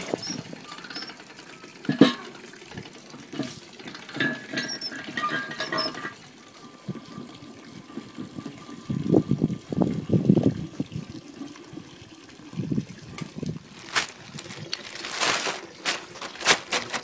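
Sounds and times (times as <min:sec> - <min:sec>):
wine trickling into bin: 0:00.0 - 0:17.0
short squeaks: 0:00.1 - 0:01.2, 0:04.6 - 0:06.1.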